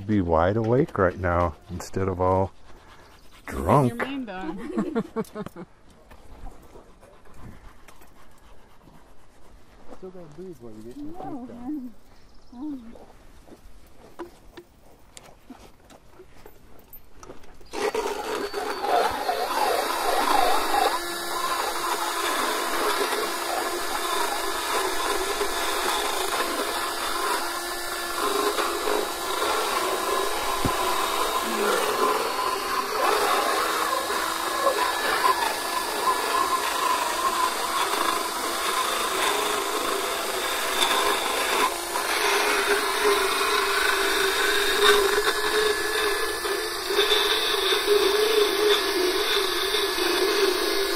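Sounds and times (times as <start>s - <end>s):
motorized dental float grinding teeth: 0.5s - 5.0s, 17.6s - 50.9s.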